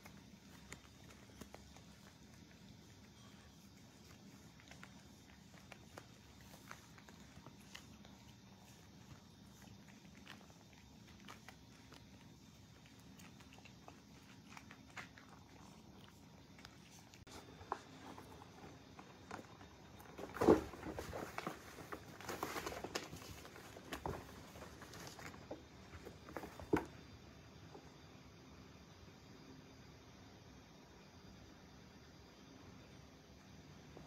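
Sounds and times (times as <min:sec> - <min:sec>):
cat eating from a bowl: 0:00.0 - 0:24.2
paws scratching on cardboard: 0:00.0 - 0:27.0.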